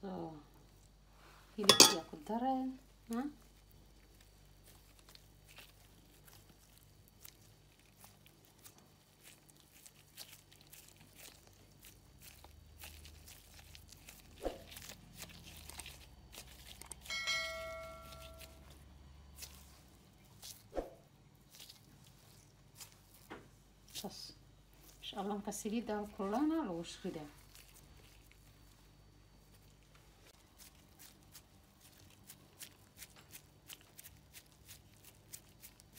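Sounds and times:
plastic gloves crinkling: 1.6s - 35.9s
pitched ring: 1.7s - 2.1s, 17.1s - 18.6s.

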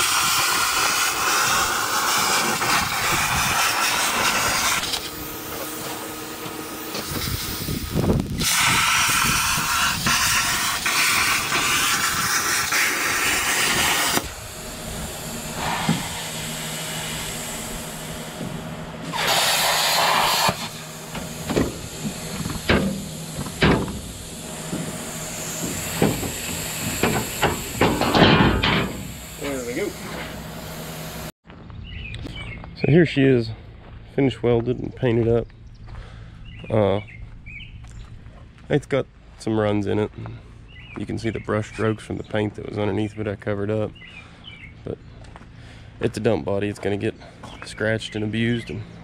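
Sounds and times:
plasma cutter cutting steel: 0.0s - 31.3s
steady low hum: 0.0s - 49.0s.

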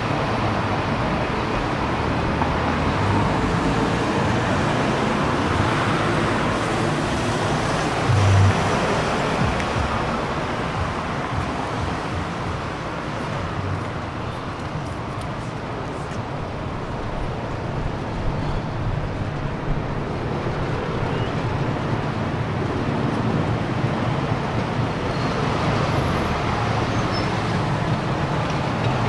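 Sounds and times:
street traffic noise: 0.0s - 29.0s.

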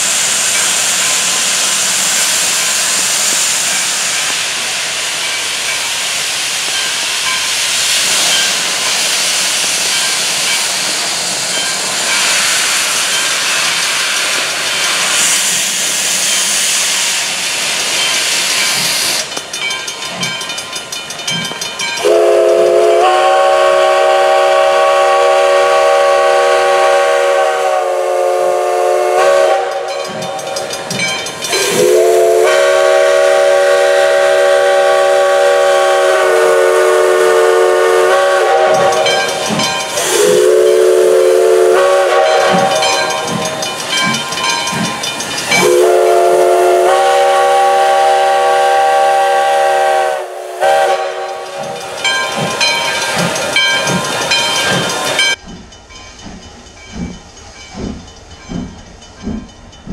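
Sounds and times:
hissing steam: 0.0s - 55.5s
steam locomotive whistle: 22.0s - 30.5s, 31.5s - 43.6s, 45.5s - 55.4s.

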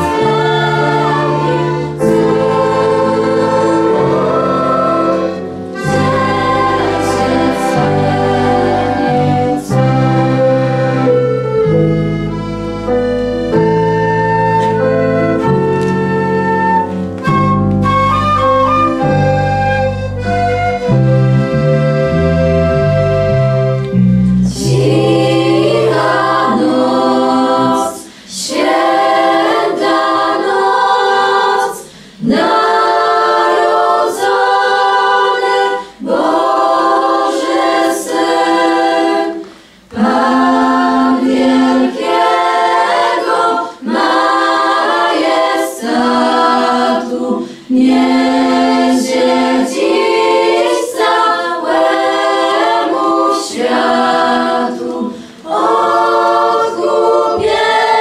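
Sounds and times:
held keyboard chord: 0.0s - 27.4s
choir singing: 0.0s - 58.0s.

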